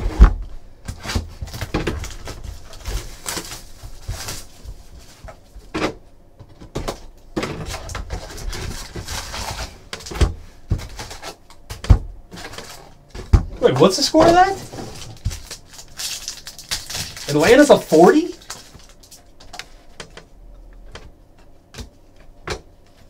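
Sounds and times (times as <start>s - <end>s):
cardboard flaps scraping: 0.0s - 5.9s, 7.4s - 11.4s
plastic wrap rustling: 0.9s - 5.7s, 7.0s - 11.5s, 12.3s - 20.0s.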